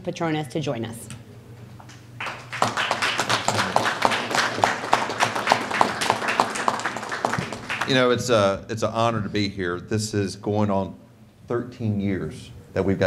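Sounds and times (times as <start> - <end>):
nearby person clapping: 1.8 - 8.0
small group applauding: 1.8 - 8.3.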